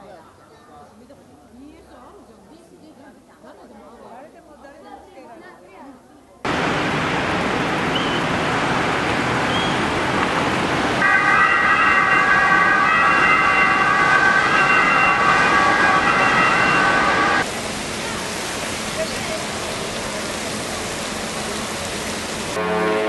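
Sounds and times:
loud rushing noise: 6.5 - 18.0
ship horn blast: 11.0 - 17.5, 22.5 - 23.0.

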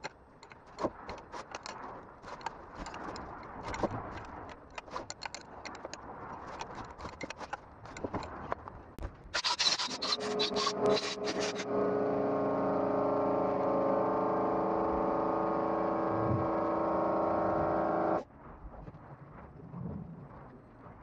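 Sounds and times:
rag scrubbing metal: 9.4 - 18.2.

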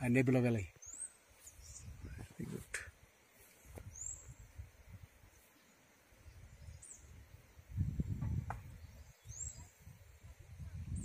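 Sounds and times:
gusty wind on microphone: 1.6 - 2.8, 6.3 - 11.0
high bird chirp: 8.0 - 9.9.

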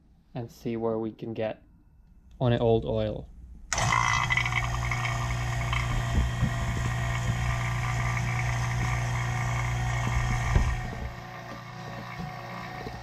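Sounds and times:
vacuum pump humming: 3.7 - 13.0.

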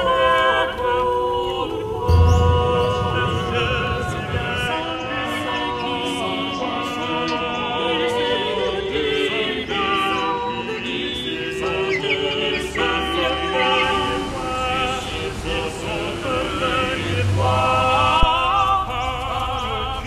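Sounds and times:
vocal ensemble singing: 0.0 - 20.0.

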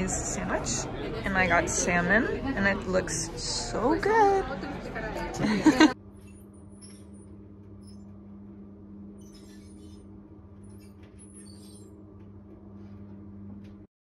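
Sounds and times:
low hum: 5.4 - 13.9.

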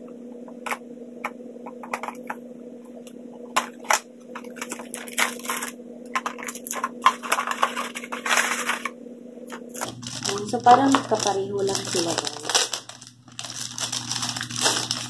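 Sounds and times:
steady low hum: 0.0 - 15.0
scissors cutting packaging: 3.6 - 8.9, 9.7 - 15.0
plastic crinkling: 3.6 - 15.0.

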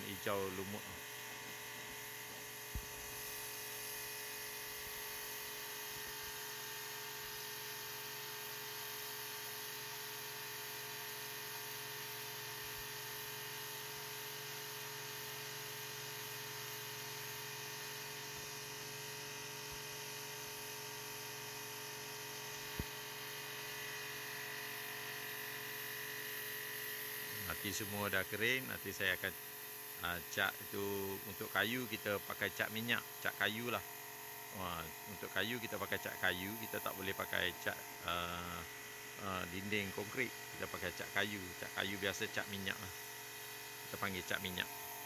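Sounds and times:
pressure washer motor humming: 0.0 - 10.6, 17.1 - 45.0.

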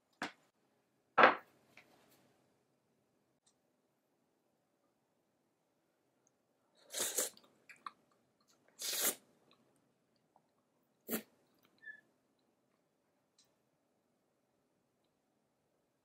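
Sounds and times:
person sipping and chewing soup: 6.7 - 11.8.

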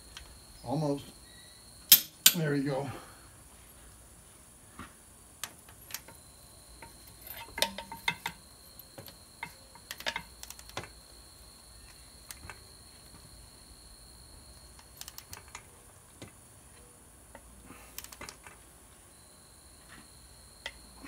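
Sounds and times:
metallic ratchet clicks: 14.8 - 15.6, 18.0 - 18.3.

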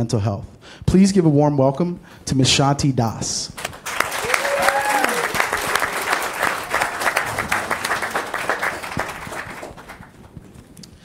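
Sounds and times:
audience applauding: 3.6 - 10.7.

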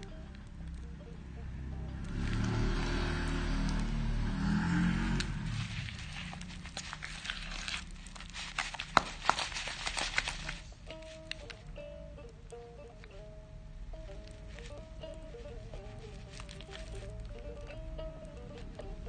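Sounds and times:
low hum: 0.0 - 8.4
hands squishing creamy paste: 5.2 - 11.5, 14.1 - 17.8.

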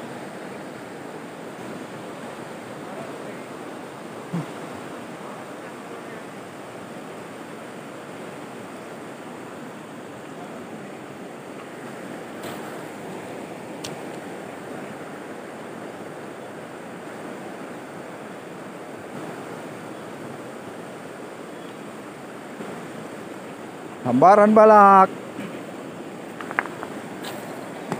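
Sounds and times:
river rushing over stones: 0.0 - 27.9
faint clicks: 26.4 - 27.4.

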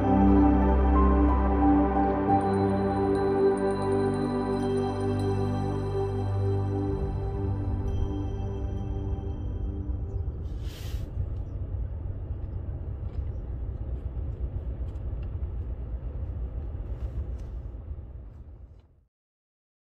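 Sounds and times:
road rumble inside moving car: 10.0 - 19.0
brief hiss: 10.4 - 11.2.

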